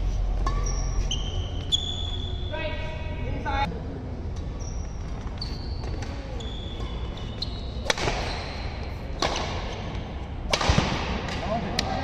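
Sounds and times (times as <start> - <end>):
shoes squeaking on court: 0.4 - 2.4, 4.6 - 9.2
racket hitting shuttlecock: 7.8 - 11.9.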